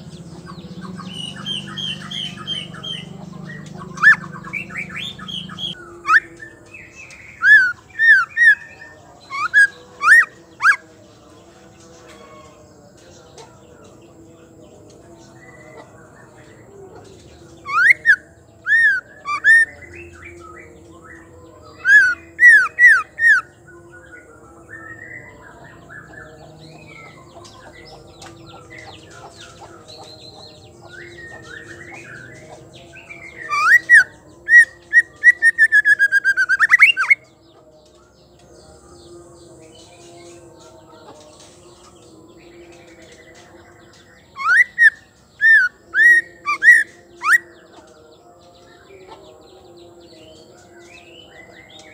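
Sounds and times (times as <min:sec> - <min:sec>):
rapid bird trill: 0:00.0 - 0:10.8, 0:17.1 - 0:20.7, 0:21.6 - 0:23.7, 0:28.7 - 0:37.3, 0:44.3 - 0:47.5.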